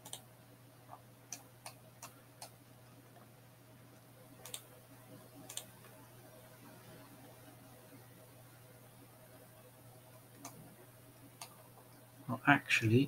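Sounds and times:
computer mouse clicks: 0.0s - 0.2s, 4.4s - 4.7s, 5.4s - 6.0s, 10.3s - 10.6s, 11.4s - 11.6s
faint steady hum: 0.0s - 13.0s.

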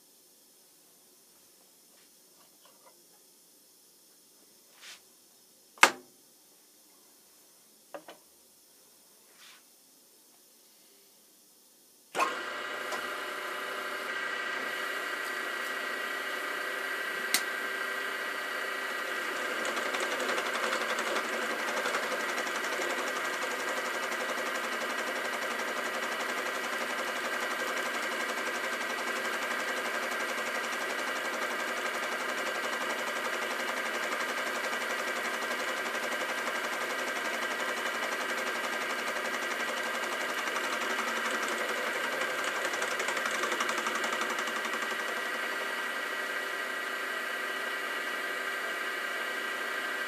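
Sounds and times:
mill drill motor whining: 12.2s - 50.0s
mill drill switch click: 17.3s - 17.5s.

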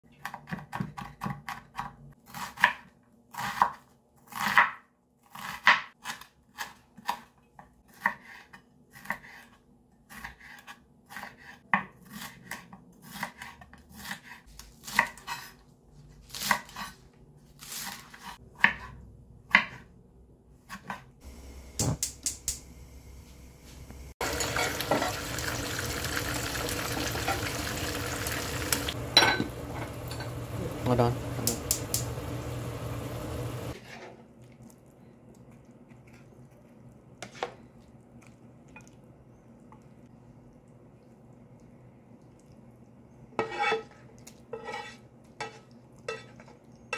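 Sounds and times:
knife chopping on cutting board: 0.2s - 7.3s, 7.9s - 9.5s, 10.1s - 15.6s, 17.8s - 19.9s
gas burner hissing: 21.3s - 33.8s.

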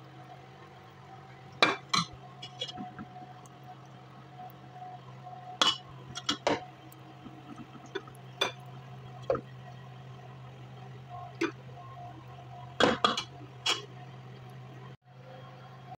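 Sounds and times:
steady low hum: 0.0s - 15.9s
dishes clinking and knocking: 12.8s - 13.8s.

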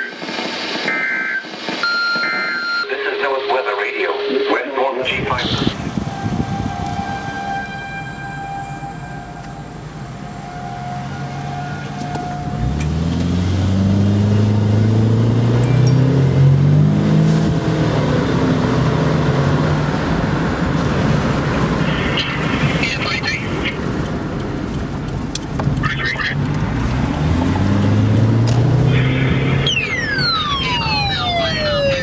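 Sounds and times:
distant warning siren: 1.0s - 21.8s, 26.7s - 32.0s
vehicle engine accelerating: 12.4s - 32.0s.

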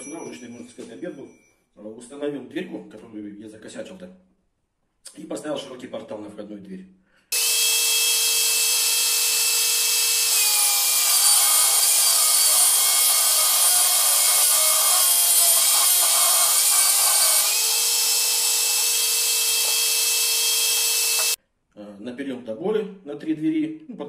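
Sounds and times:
power tool whining: 7.3s - 21.4s.

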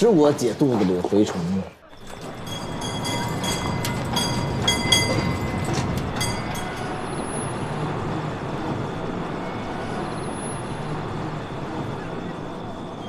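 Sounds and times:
tram rumbling on rails: 0.0s - 13.0s
faint high squeal: 1.9s - 13.0s
ringing metallic strikes: 2.0s - 7.4s.

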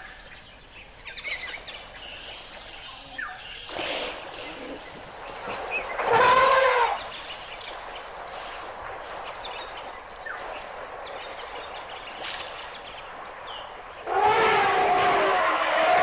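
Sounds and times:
outdoor background noise: 0.0s - 16.0s.

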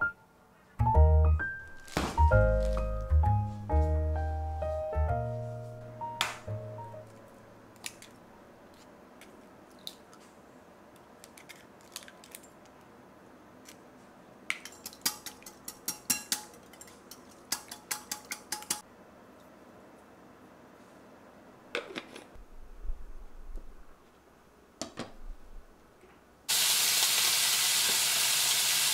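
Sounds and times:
whisk clicking against glass bowl: 14.8s - 18.8s.

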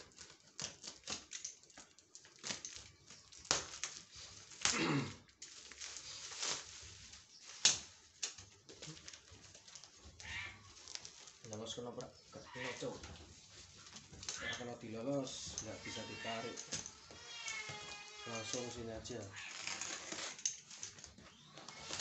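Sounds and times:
paper wrapping tearing: 0.0s - 11.6s, 15.6s - 22.0s.

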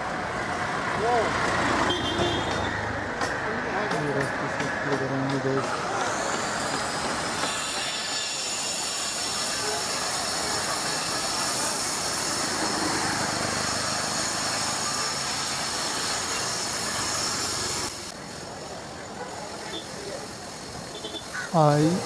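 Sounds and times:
busy street traffic: 0.0s - 22.0s
people's voices: 3.2s - 6.7s.

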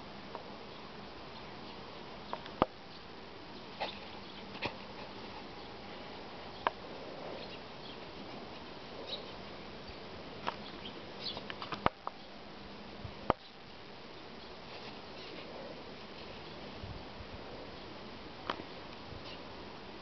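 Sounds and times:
faint low hum: 0.0s - 20.0s
outdoor background hiss: 0.0s - 20.0s.

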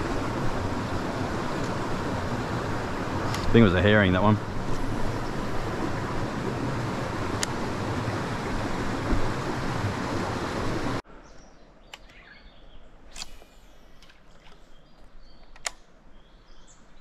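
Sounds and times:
steady rushing outdoor noise: 0.0s - 11.2s
sharp clicks: 11.9s - 12.2s, 13.1s - 14.6s, 15.4s - 15.9s.

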